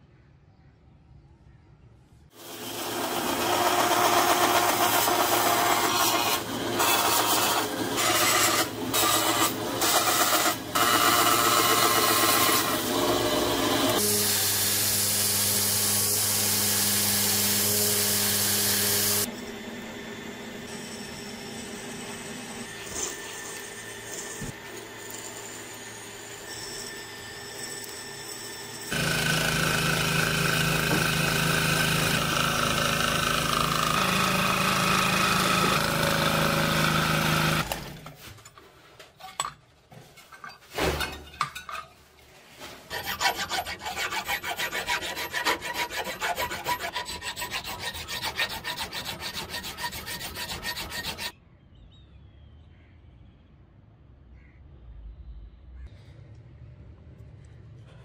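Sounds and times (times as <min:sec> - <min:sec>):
drill boring into brass: 0:02.4 - 0:19.5, 0:20.4 - 0:37.8, 0:42.9 - 0:51.3
scroll saw cutting brass: 0:02.4 - 0:38.0, 0:42.9 - 0:51.4
hand file rasping metal: 0:42.9 - 0:51.3.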